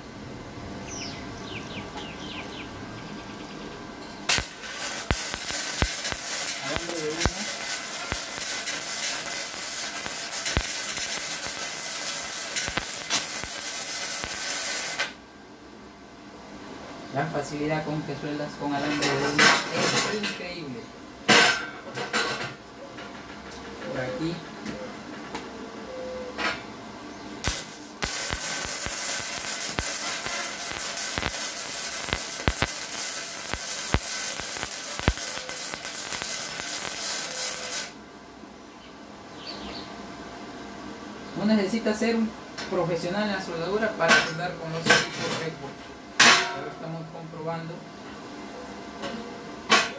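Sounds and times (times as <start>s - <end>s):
sharp welding pops: 4.3s - 15.2s, 27.4s - 38.0s
welding arc crackling: 4.3s - 15.2s, 27.4s - 38.0s.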